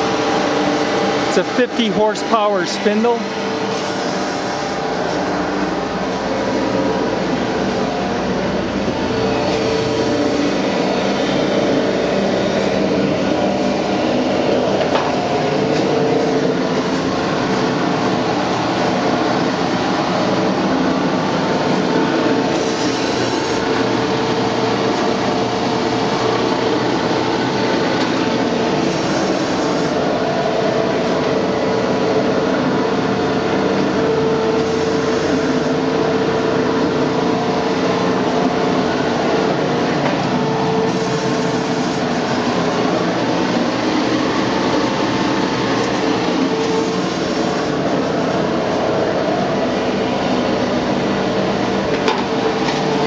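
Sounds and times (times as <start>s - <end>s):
surface grinder humming: 0.0s - 32.8s.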